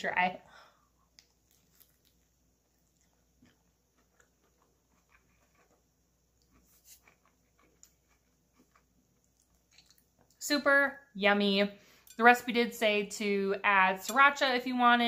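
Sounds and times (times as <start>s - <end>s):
chewing lettuce wrap: 1.2s - 10.4s.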